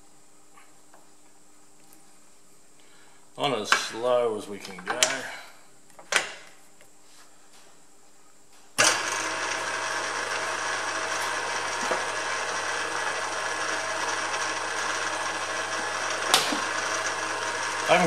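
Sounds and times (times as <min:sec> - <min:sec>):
milling machine motor humming: 0:08.8 - 0:18.0.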